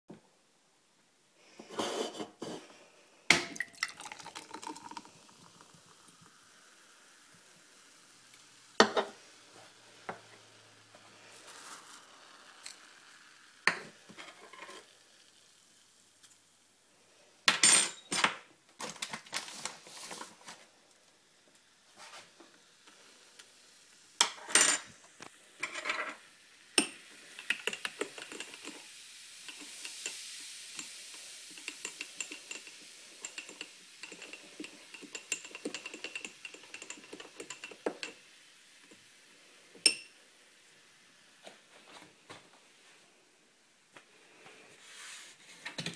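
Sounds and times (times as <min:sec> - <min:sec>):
crackling hiss: 0:01.0 - 0:17.5, 0:18.6 - 0:45.8
dishes and utensils clinking: 0:17.5 - 0:18.4, 0:24.2 - 0:24.9, 0:25.6 - 0:26.2, 0:31.6 - 0:38.2
stirring: 0:30.8 - 0:38.2.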